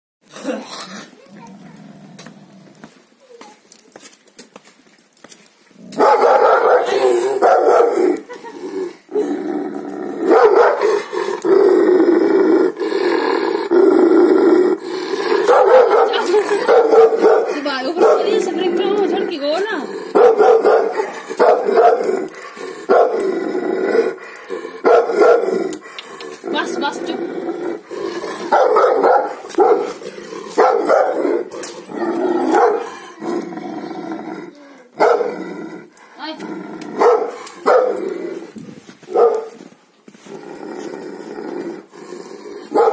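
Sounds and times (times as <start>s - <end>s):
dog growling: 0.3s - 2.8s, 5.8s - 38.8s, 40.2s - 42.9s
dog barking: 6.0s - 8.0s, 10.3s - 11.0s, 15.4s - 18.5s, 20.1s - 22.1s, 22.9s - 23.2s, 24.9s - 25.6s, 28.5s - 30.0s, 30.6s - 31.2s, 32.4s - 32.9s, 35.0s - 35.3s, 37.0s - 38.0s, 39.1s - 39.6s.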